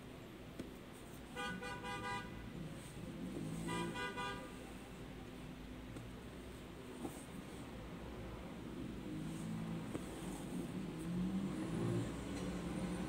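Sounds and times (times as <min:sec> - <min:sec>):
low room noise: 0:00.0 - 0:13.0
vehicle horn toots: 0:01.4 - 0:02.4, 0:03.7 - 0:04.5.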